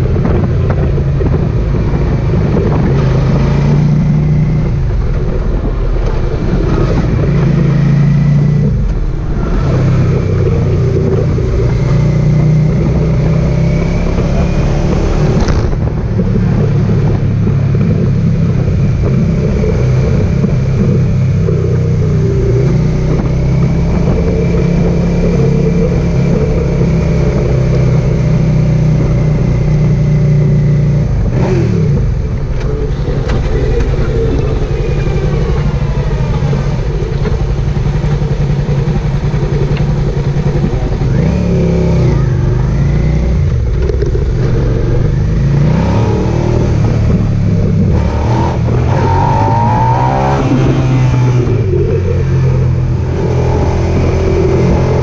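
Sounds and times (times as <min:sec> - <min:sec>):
motorcycle engine running: 0:00.0 - 0:55.0
wind noise: 0:00.0 - 0:55.0.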